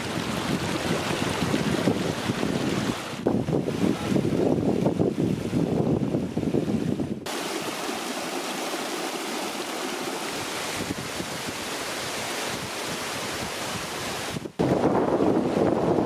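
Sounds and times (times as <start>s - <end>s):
stream cascading over rocks: 0.0s - 3.2s, 7.3s - 14.6s.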